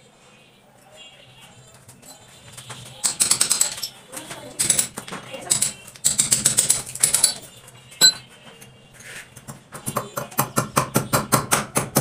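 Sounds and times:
ringing metal clink: 0:08.0 - 0:08.3.

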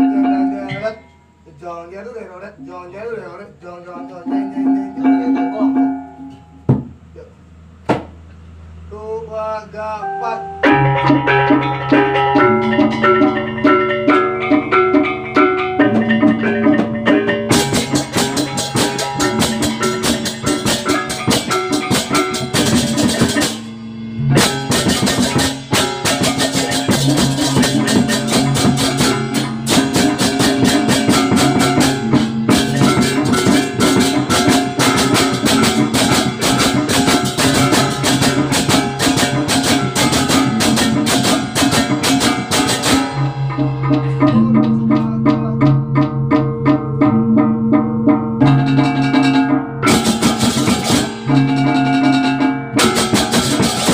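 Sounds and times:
gongs ringing: 0:04.0 - 0:06.7, 0:09.7 - 0:53.9
fast cymbal and drum strokes: 0:15.8 - 0:43.3, 0:49.9 - 0:52.2, 0:52.8 - 0:53.9.

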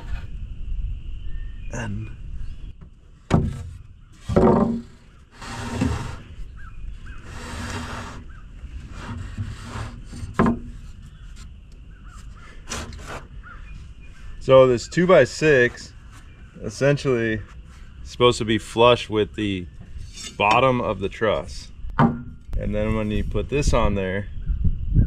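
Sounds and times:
wood knocking on wood: 0:02.8 - 0:05.0, 0:10.3 - 0:10.8, 0:21.9 - 0:22.4
board scraping on wood: 0:03.3 - 0:13.6.

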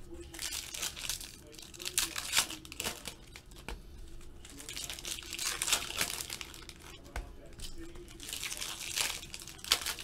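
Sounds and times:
foil wrappers crinkling: 0:00.2 - 0:10.0
foil packs tearing: 0:00.3 - 0:03.4, 0:04.5 - 0:06.9, 0:08.1 - 0:10.0.

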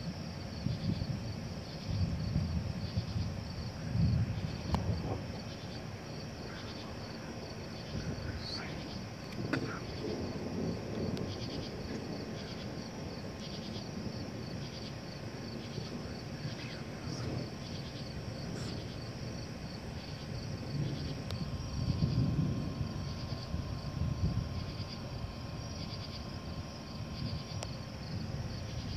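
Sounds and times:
crickets chirping: 0:00.0 - 0:28.9
low rumble: 0:15.5 - 0:28.9.

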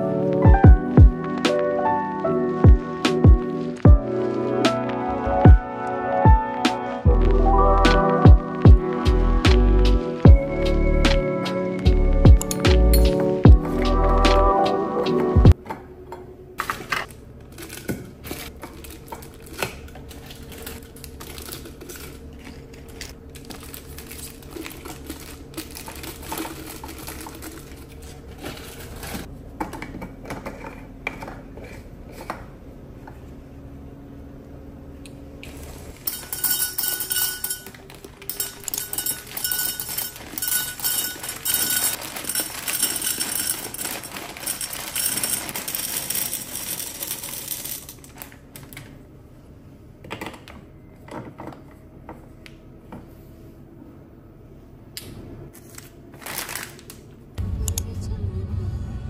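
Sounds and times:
packet crinkling: 0:18.3 - 0:28.0, 0:37.8 - 0:48.8, 0:56.2 - 0:57.0
snack packets dropped into glass jar: 0:36.0 - 0:48.4
dry pasta rattling into glass: 0:36.1 - 0:48.2.

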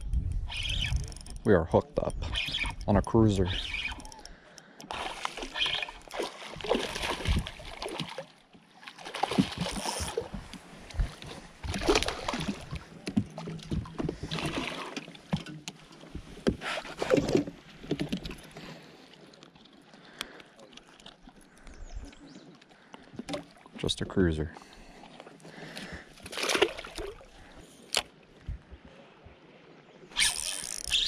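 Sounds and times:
fish splashing and thrashing in water: 0:02.2 - 0:18.7, 0:25.2 - 0:28.2.

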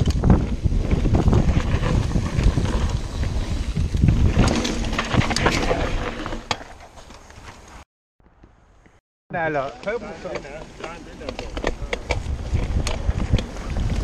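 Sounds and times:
wind buffeting microphone: 0:00.0 - 0:05.9, 0:11.3 - 0:14.0
bike tyres rumbling on dirt: 0:00.0 - 0:07.8, 0:09.5 - 0:14.0
bike clacking over bumps: 0:09.6 - 0:14.0.

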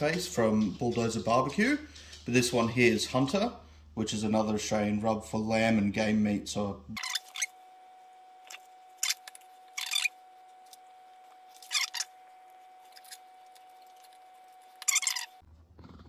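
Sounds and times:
faint steady hum: 0:00.0 - 0:15.8.

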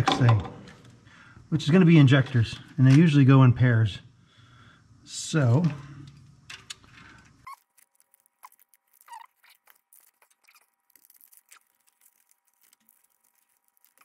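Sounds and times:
small ticks from handling wires: 0:06.1 - 0:14.0.

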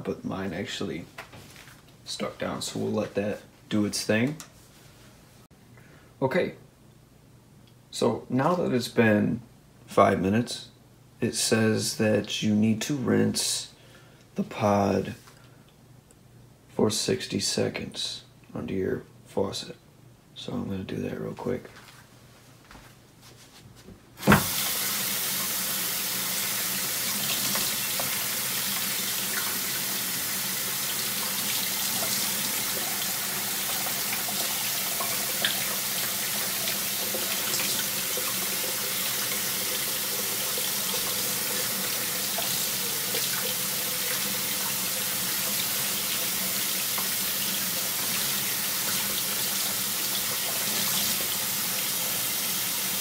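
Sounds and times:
kitchen faucet running: 0:24.2 - 0:53.0.

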